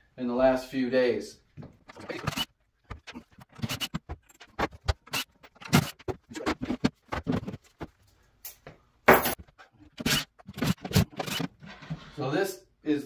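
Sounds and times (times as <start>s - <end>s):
wooden boards knocking and scraping: 2.9s - 7.9s.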